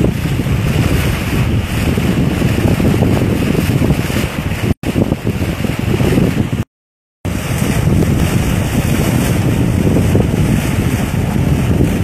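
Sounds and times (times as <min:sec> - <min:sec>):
bow wave splashing along hull: 0:00.0 - 0:12.0
wind buffeting the microphone: 0:00.0 - 0:12.0.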